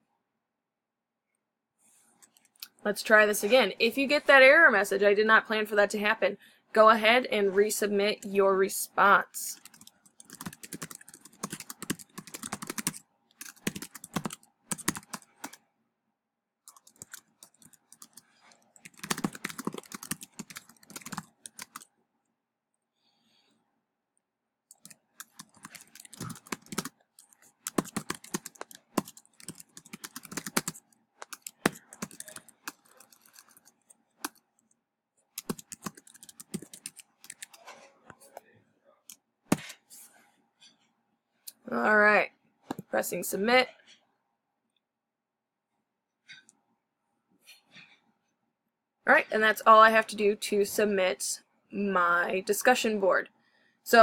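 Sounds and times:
computer keyboard typing: 0:09.5 - 0:15.6, 0:16.7 - 0:21.9, 0:24.7 - 0:34.7, 0:35.4 - 0:37.6.

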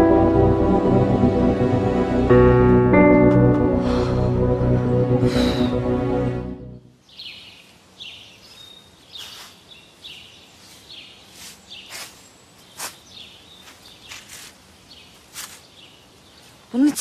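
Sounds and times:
small birds chirping: 0:07.0 - 0:17.0
footsteps crunching dry leaves: 0:08.5 - 0:16.7.

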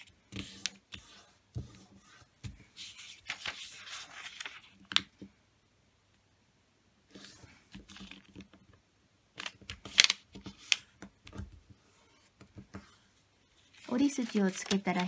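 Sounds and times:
paper rustling and crackling: 0:02.9 - 0:05.0, 0:13.6 - 0:15.0.

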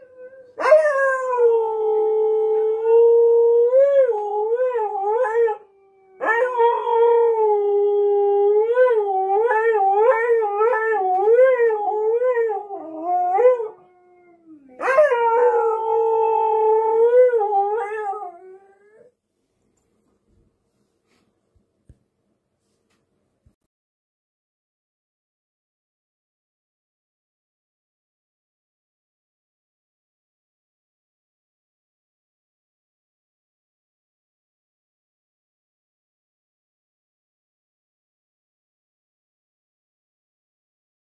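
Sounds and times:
husky howling: 0:00.0 - 0:19.1.

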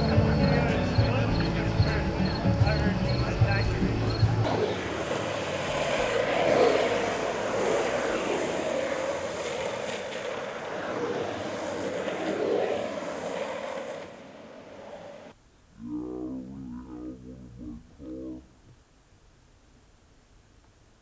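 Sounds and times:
longboard wheels rolling on asphalt: 0:00.0 - 0:15.4
rushing wind: 0:00.0 - 0:15.4.

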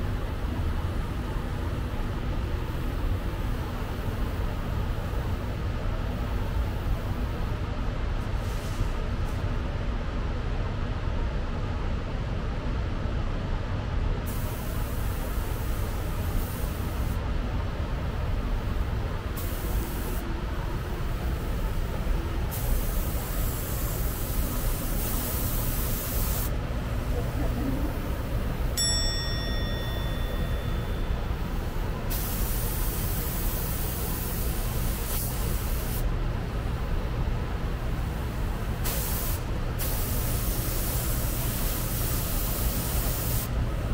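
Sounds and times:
compressed air hissing from air tool: 0:14.3 - 0:17.2, 0:19.4 - 0:20.2, 0:22.5 - 0:26.5, 0:32.1 - 0:36.1, 0:38.8 - 0:43.5.

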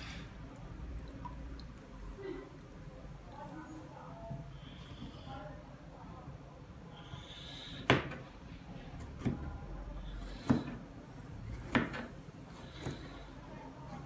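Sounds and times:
knife chopping on a board: 0:07.8 - 0:08.2, 0:10.3 - 0:10.8, 0:11.5 - 0:12.1.

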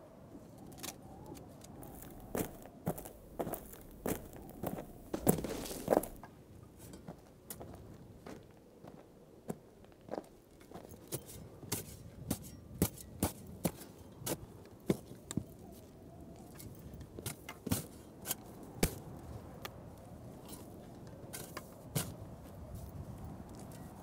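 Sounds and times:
faint rustle: 0:00.4 - 0:07.2
footsteps crackling on dry ground: 0:01.1 - 0:11.7.

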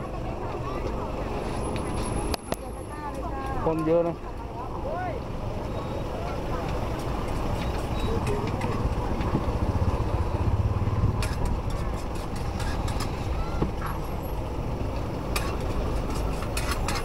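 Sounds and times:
traffic rumble: 0:00.0 - 0:17.0
sharp clicks and clatter: 0:06.6 - 0:14.0, 0:14.9 - 0:17.0
heavy vehicle passing: 0:08.2 - 0:15.3.

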